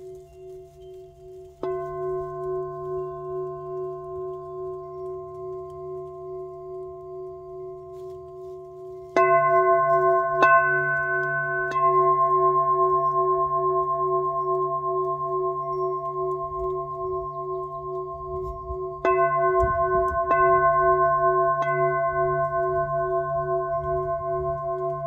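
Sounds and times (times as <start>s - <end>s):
singing bowl ringing: 0.0s - 25.0s.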